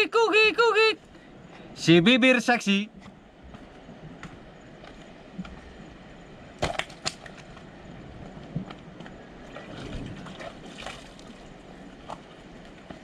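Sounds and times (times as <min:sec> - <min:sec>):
sea washing: 0:08.3 - 0:12.8.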